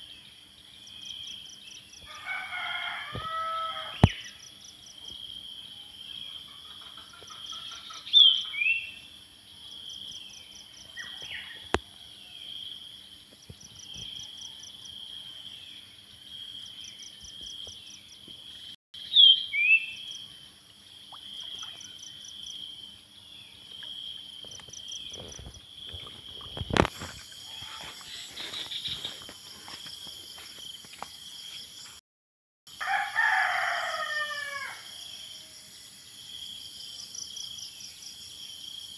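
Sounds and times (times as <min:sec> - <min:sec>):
insects buzzing and trilling: 0:00.0 - 0:32.0, 0:32.7 - 0:38.9
rooster crowing: 0:02.1 - 0:04.1, 0:32.7 - 0:35.6.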